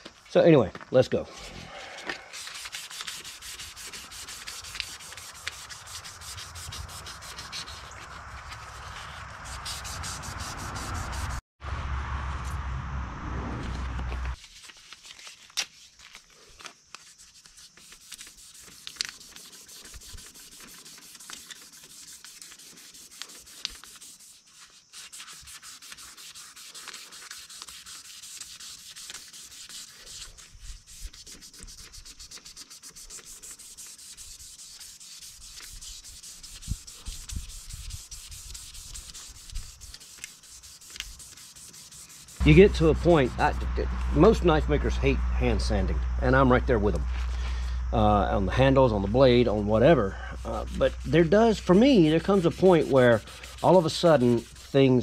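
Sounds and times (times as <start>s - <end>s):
sandpaper scratching: 1.3s - 11.4s, 14.0s - 45.9s, 46.7s - 55.0s
loud low noise: 9.8s - 14.4s, 42.4s - 49.1s.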